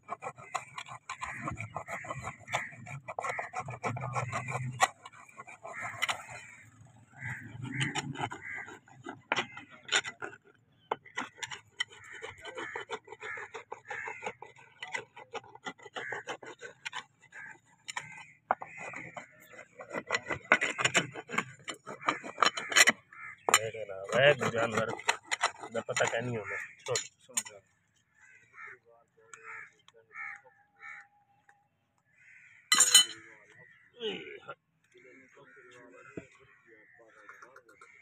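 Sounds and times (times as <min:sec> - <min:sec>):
hoof rasp scraping hoof: 0:00.0 - 0:28.5.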